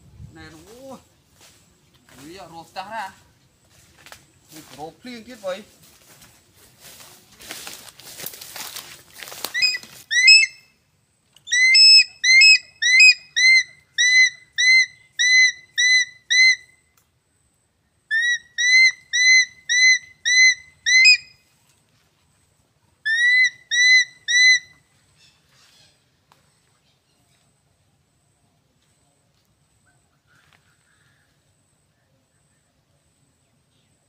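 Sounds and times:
eagle whistled call: 0:09.5 - 0:10.7, 0:11.4 - 0:16.8, 0:18.1 - 0:21.4, 0:23.1 - 0:24.7.

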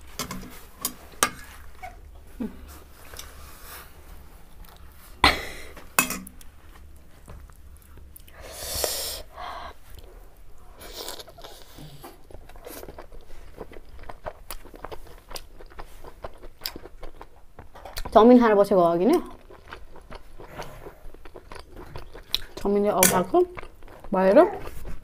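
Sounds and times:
wet chewing: 0:10.8 - 0:18.2, 0:19.2 - 0:25.0.

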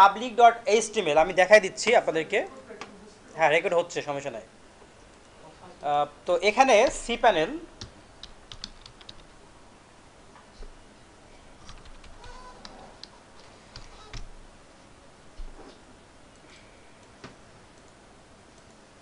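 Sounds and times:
computer keyboard keystrokes: 0:07.8 - 0:09.3, 0:11.6 - 0:13.1.

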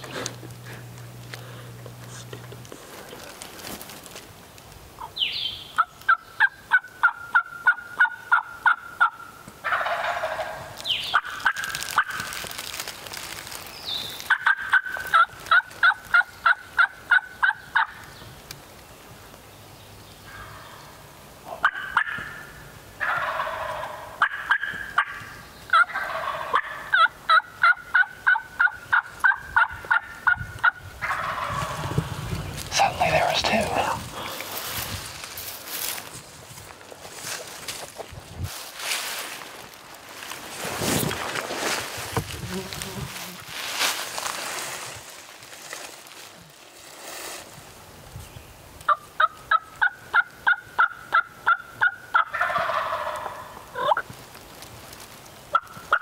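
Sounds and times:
turkeys gobbling: 0:05.0 - 0:12.6, 0:14.2 - 0:18.1, 0:20.3 - 0:34.7, 0:48.8 - 0:54.2, 0:55.5 - 0:56.0
turkeys yelping: 0:05.0 - 0:12.6, 0:13.9 - 0:18.1, 0:20.3 - 0:34.7, 0:48.8 - 0:54.1, 0:55.5 - 0:56.0.

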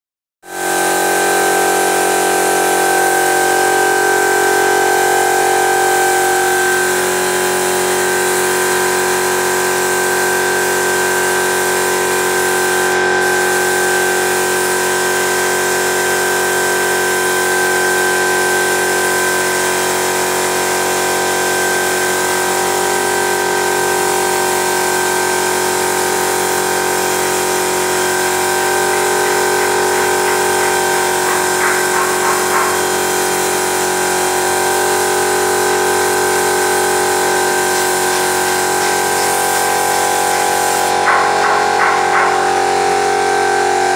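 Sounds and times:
paint spray hissing: 0:11.4 - 0:15.0, 0:26.4 - 0:33.9, 0:34.9 - 0:42.5
motor humming: 0:26.9 - 0:33.8, 0:35.7 - 0:43.1.

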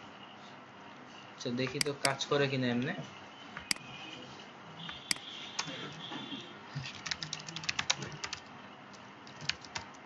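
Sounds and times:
computer keyboard typing: 0:01.7 - 0:02.2, 0:06.8 - 0:10.0.

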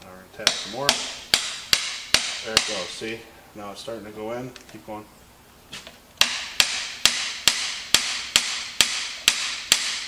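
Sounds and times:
hammer tapping on metal: 0:00.4 - 0:02.9, 0:06.2 - 0:10.0.

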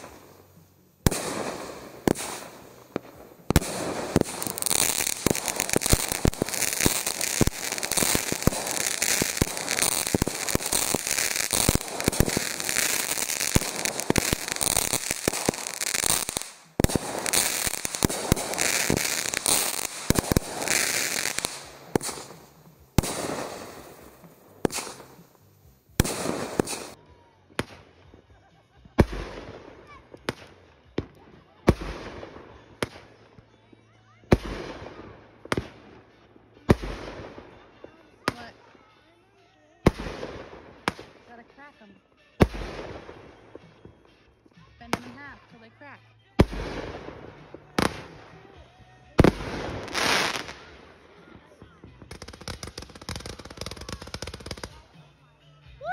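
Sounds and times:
firework bangs: 0:00.0 - 0:27.0, 0:49.2 - 0:50.9, 0:52.0 - 0:54.8
fireworks crackling and popping: 0:00.0 - 0:27.0, 0:29.0 - 0:33.2, 0:34.3 - 0:38.6, 0:39.8 - 0:41.6, 0:42.4 - 0:45.3, 0:46.4 - 0:48.5, 0:49.1 - 0:55.2.

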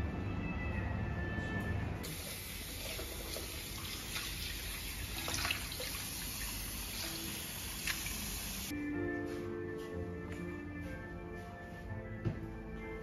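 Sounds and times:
tap water running into basin: 0:02.0 - 0:08.7.

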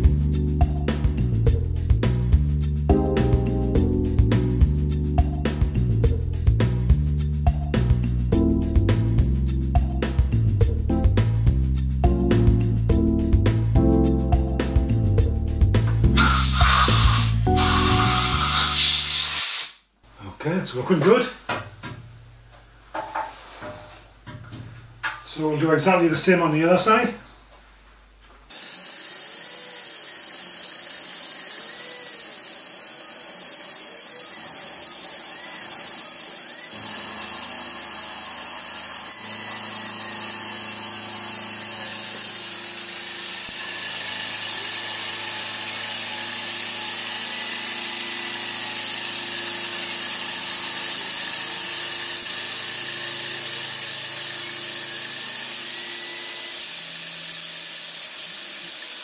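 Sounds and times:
motor hum: 0:15.6 - 0:19.0, 0:28.5 - 0:59.0
milling machine squealing: 0:16.2 - 0:19.7, 0:29.1 - 0:59.0.

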